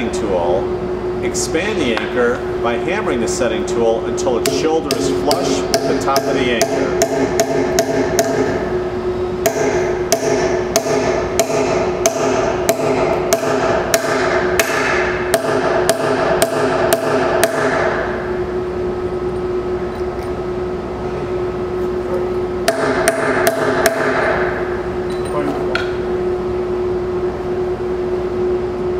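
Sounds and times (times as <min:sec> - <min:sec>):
steady hum: 0:00.0 - 0:28.9
hammer striking steel tool: 0:04.4 - 0:08.6, 0:09.4 - 0:18.1, 0:22.7 - 0:24.5.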